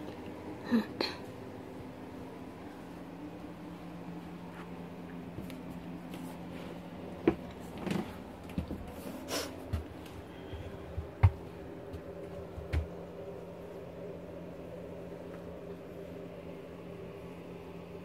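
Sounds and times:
footsteps thumping: 9.7 - 13.0.

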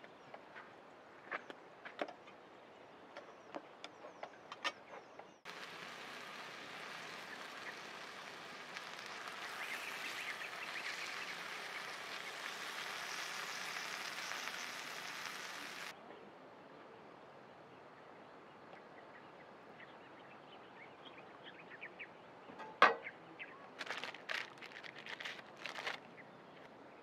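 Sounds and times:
burger patties sizzling: 5.5 - 15.9
sharp ticks and pops: 5.5 - 15.9.

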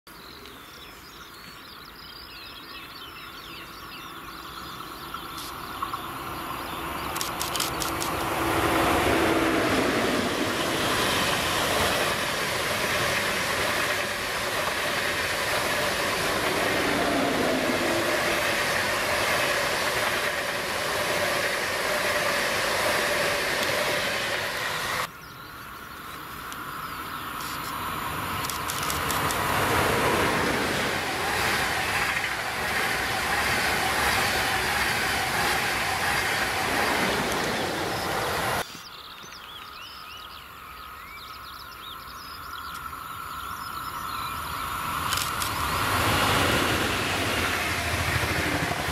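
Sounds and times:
high-speed train passing: 3.2 - 25.2, 26.4 - 38.7, 42.4 - 48.9
train clicks on rail: 7.0 - 8.6, 10.3 - 25.0, 28.4 - 38.9, 45.0 - 48.9.

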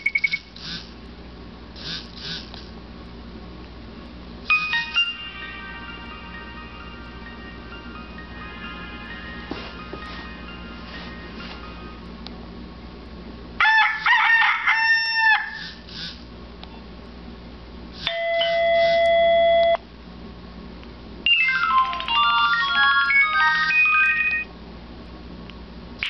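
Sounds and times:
phone alert tones: 0.0 - 0.5, 4.5 - 12.0, 18.1 - 19.8, 21.3 - 24.5
pulsed ringing beeps: 0.0 - 0.8, 4.5 - 9.3, 18.1 - 19.8, 22.4 - 24.5
short synthesized notes: 4.5 - 12.1
held electronic chord: 4.5 - 12.2.

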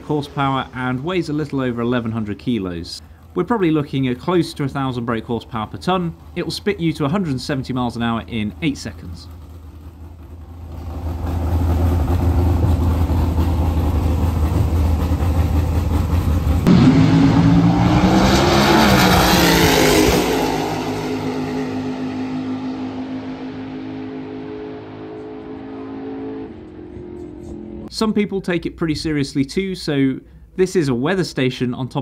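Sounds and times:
drag racing car engine at full throttle: 5.0 - 27.9.

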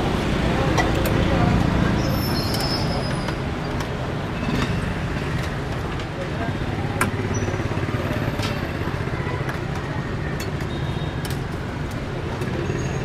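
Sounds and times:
motorbike traffic rumble: 0.0 - 13.0.

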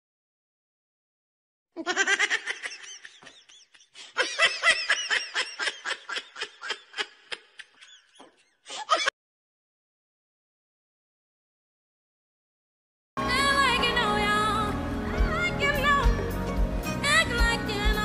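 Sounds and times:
person laughing hard: 1.8 - 9.1.

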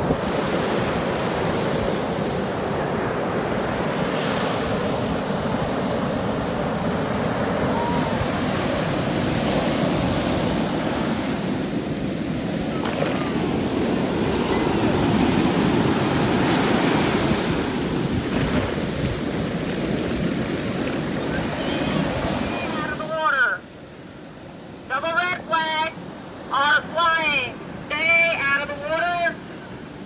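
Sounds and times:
ocean surf breaking: 0.0 - 30.0
wash running up sand: 12.5 - 23.2.

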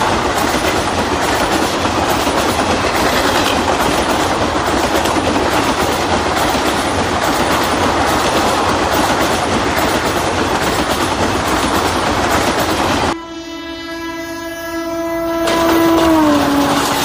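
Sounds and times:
train horn tone: 13.1 - 17.0.

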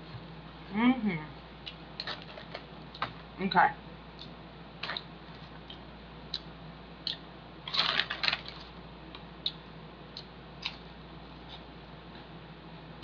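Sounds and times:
crisps crunching: 7.1 - 9.2.

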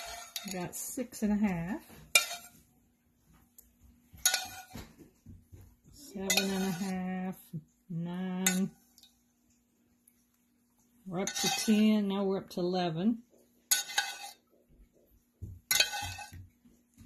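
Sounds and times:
spoon scraping ceramic bowl: 0.0 - 0.7, 2.0 - 2.6, 4.2 - 4.8, 6.2 - 7.1, 11.1 - 11.9, 13.7 - 14.5, 15.7 - 16.4.

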